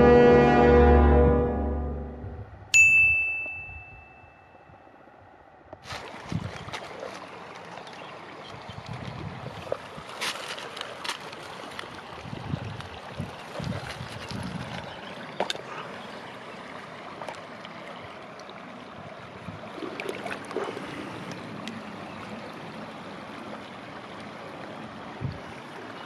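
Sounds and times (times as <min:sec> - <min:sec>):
river running over stones: 0:05.8 - 0:26.0.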